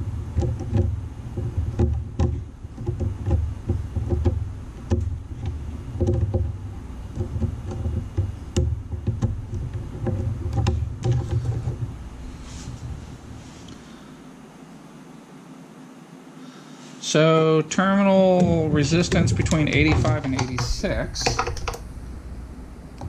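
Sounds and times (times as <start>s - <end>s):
low handling rumble: 0.0s - 14.6s, 18.2s - 23.0s
probe tips tapping relay terminals: 18.3s - 23.0s.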